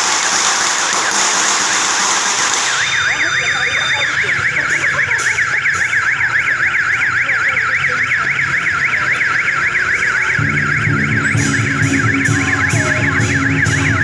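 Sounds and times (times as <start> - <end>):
electronic siren sweeping: 2.6 - 14.0
low rhythmic music beat: 10.4 - 14.0.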